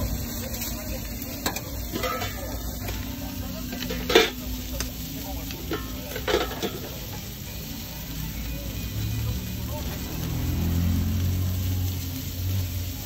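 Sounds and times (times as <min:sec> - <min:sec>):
aluminium foil rustling: 0:00.0 - 0:08.4
food sizzling on a griddle: 0:00.0 - 0:13.0.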